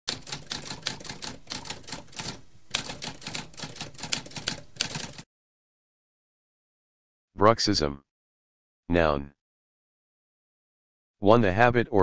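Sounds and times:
typewriter typing: 0.1 - 5.2.

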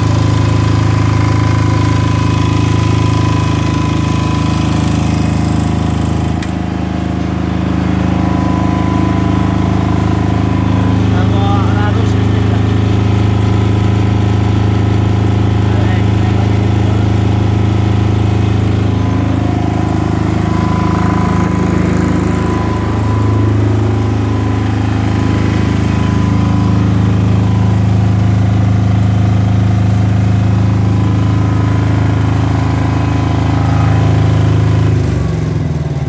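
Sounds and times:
generator engine humming: 0.0 - 36.0.

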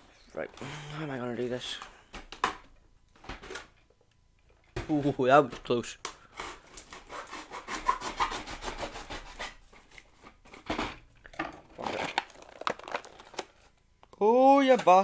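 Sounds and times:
knife scraping cardboard and plastic: 6.3 - 9.9.

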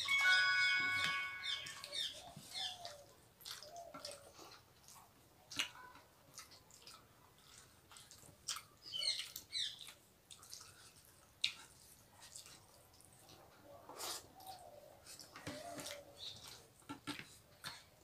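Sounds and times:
high chirps: 0.0 - 2.9
people chewing: 1.0 - 18.0.

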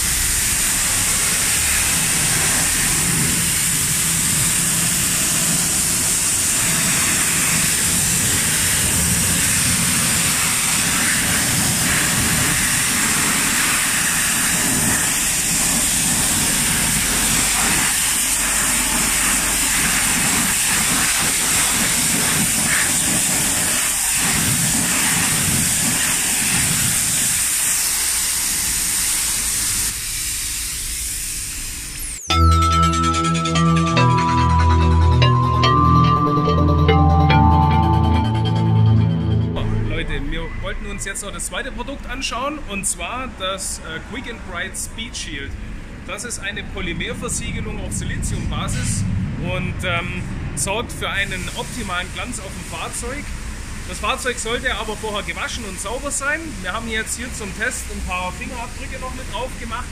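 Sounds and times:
pressure washer spraying water: 0.0 - 32.0.

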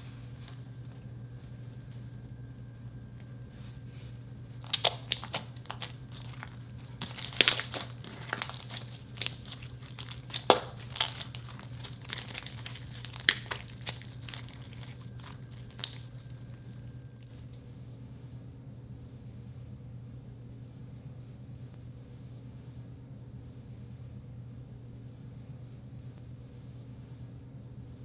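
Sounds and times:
slime popping and crackling: 4.6 - 16.8.

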